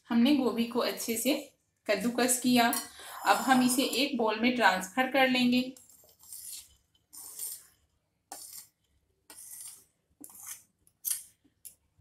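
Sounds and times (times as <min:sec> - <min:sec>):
spoon scraping paper plate: 0:03.1 - 0:04.2, 0:05.8 - 0:08.7, 0:09.3 - 0:10.7.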